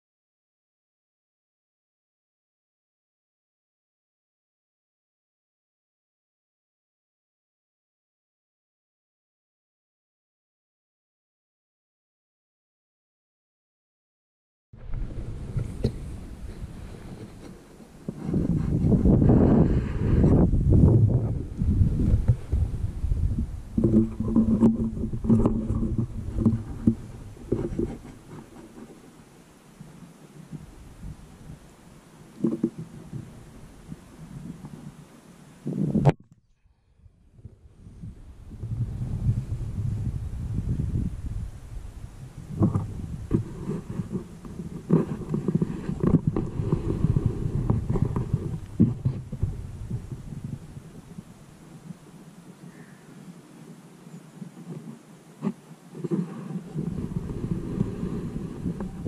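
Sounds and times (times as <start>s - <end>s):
low steady hum: 14.8s - 59.0s
wind noise: 14.8s - 59.0s
rifle handling rumble and knocks: 23.8s - 29.1s.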